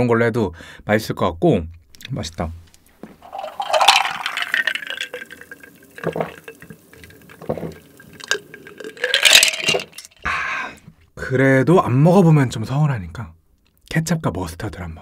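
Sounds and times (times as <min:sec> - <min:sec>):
drink being gulped: 0:03.0 - 0:10.3.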